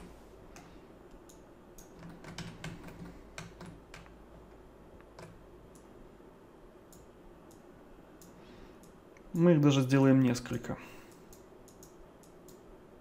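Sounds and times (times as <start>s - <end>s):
keyboard and mouse clicks: 0.0s - 4.2s, 5.0s - 5.9s, 11.1s - 12.6s
faint low hum: 0.0s - 13.0s.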